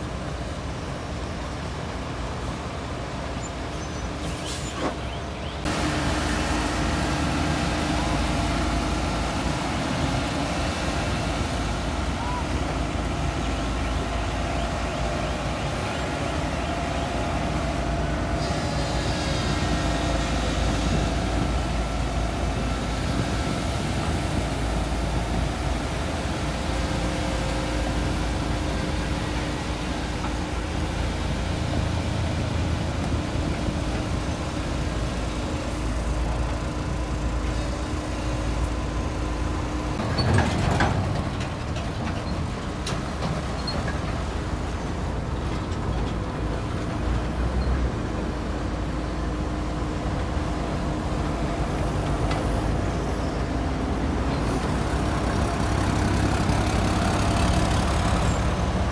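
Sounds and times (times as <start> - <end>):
diesel machinery rumbling: 0.0 - 58.9.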